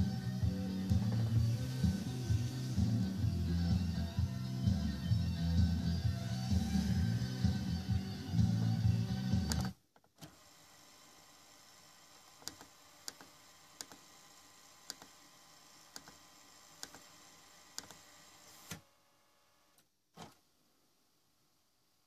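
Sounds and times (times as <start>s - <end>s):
cassette mechanism whirring: 0.0s - 4.0s, 5.7s - 11.2s.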